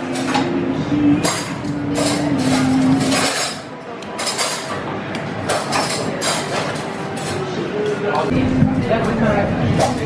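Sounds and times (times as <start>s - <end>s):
metal spoon clinking on pot and plates: 1.2s - 4.8s, 5.4s - 7.4s.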